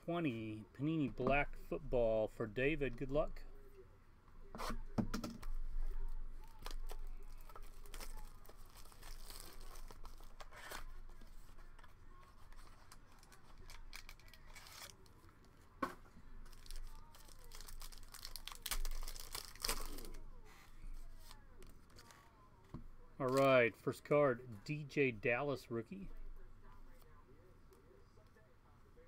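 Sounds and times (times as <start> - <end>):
foil wrapper tearing: 6.4 - 10.9, 12.6 - 15.1, 16.5 - 20.2
packaging tearing and crinkling: 6.5 - 10.9, 12.6 - 15.1, 16.5 - 20.2.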